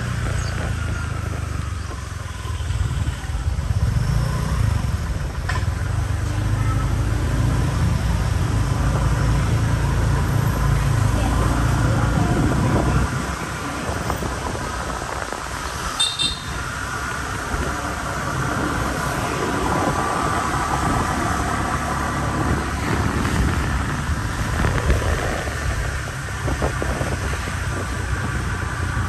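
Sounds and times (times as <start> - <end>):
motorbike riding: 0.0 - 29.0
road and wind noise: 0.0 - 29.0.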